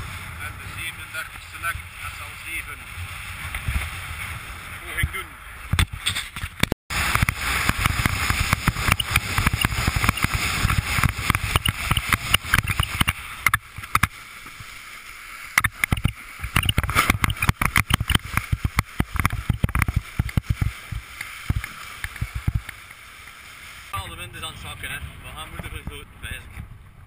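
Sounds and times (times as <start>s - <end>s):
board hull slapping water: 0.0s - 27.0s
water rushing past: 6.9s - 26.4s
wind buffeting microphone: 24.0s - 27.0s.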